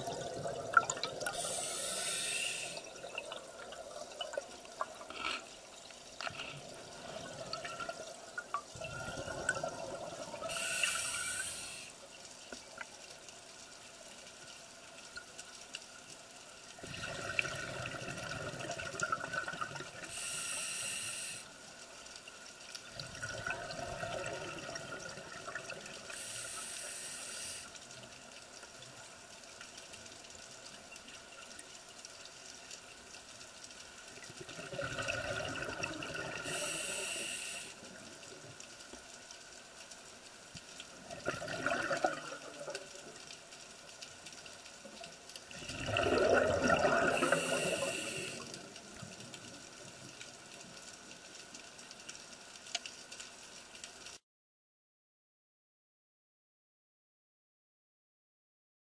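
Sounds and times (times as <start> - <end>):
exhaled bubbles underwater: 0.0 - 5.1, 6.6 - 11.6, 16.8 - 20.2, 22.9 - 26.2, 34.2 - 38.0, 41.0 - 43.2, 45.4 - 49.2
regulator hissing inhale: 1.3 - 3.0, 10.4 - 12.0, 20.0 - 21.6, 26.1 - 27.8, 36.4 - 37.8, 47.1 - 48.6.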